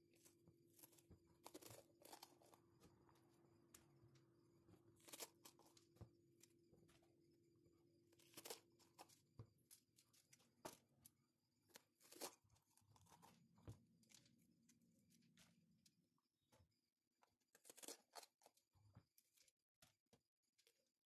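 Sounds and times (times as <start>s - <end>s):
pepper flesh crunching and tearing: 0.8s - 2.5s, 5.0s - 5.6s, 8.2s - 8.6s, 17.7s - 18.3s.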